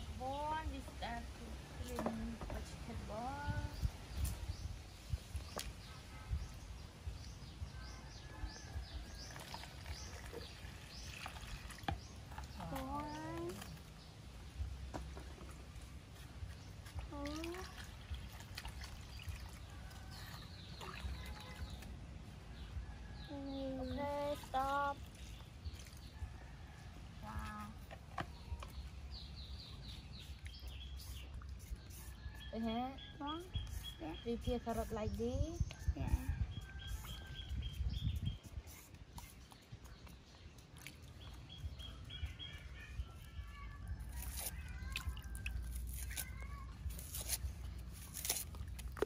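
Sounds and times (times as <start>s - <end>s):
low rumble of outdoor noise: 0.0s - 49.0s
small bird chirping: 27.2s - 48.6s.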